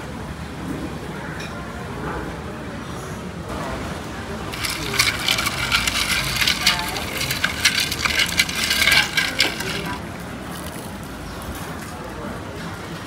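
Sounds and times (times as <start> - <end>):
ice cubes clinking against glass: 4.5 - 10.8.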